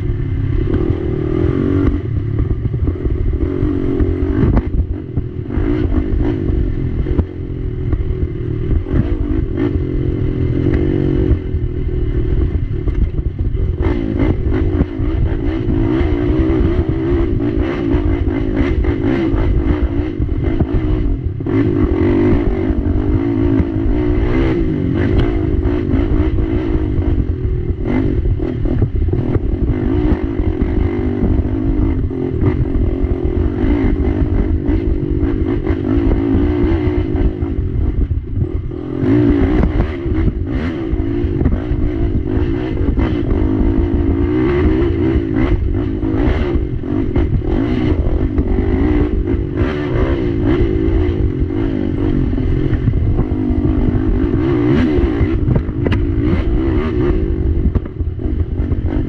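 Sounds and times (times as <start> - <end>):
atv engine revving: 0.0 - 59.0.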